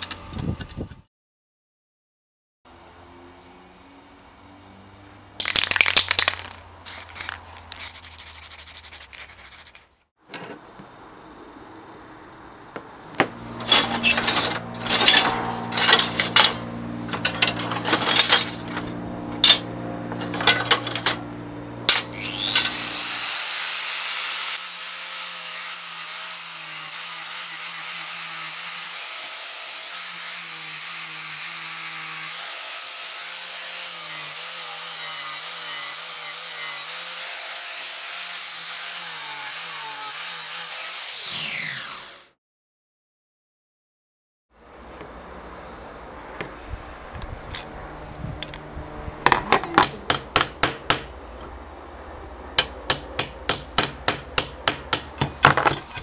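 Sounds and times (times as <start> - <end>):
scraping and knocking strokes: 5.9 - 10.6, 13.2 - 21.2
angle grinder grinding metal: 13.2 - 42.3.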